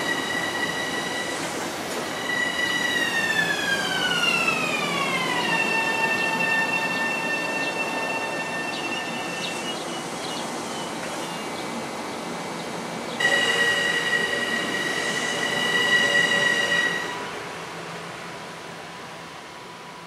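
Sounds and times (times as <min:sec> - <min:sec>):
high-pitched wheel squeal: 0:00.0 - 0:09.8, 0:13.2 - 0:17.3
train cars rolling past: 0:00.0 - 0:12.1, 0:13.1 - 0:19.6.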